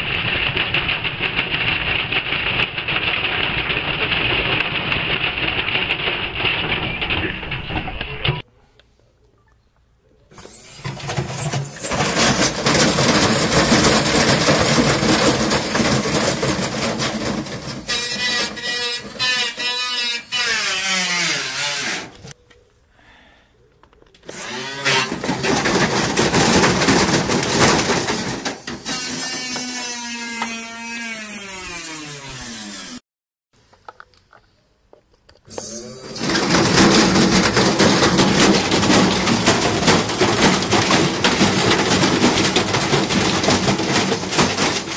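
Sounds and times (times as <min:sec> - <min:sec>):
washing machine banging and rattling: 0:10.8 - 0:19.3, 0:24.9 - 0:29.4, 0:36.2 - 0:44.9.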